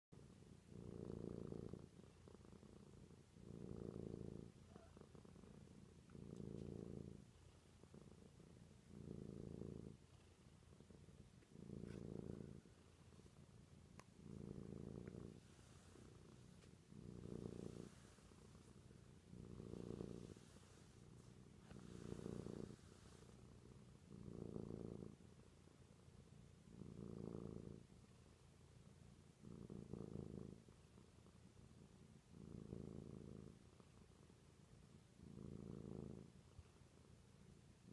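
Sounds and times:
cat purring: 0.1 - 37.9.

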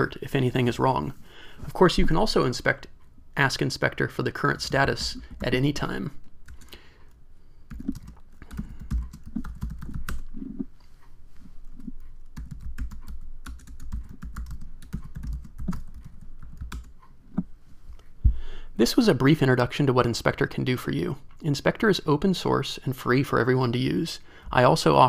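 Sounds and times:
computer keyboard typing: 7.7 - 10.6, 11.8 - 17.1.

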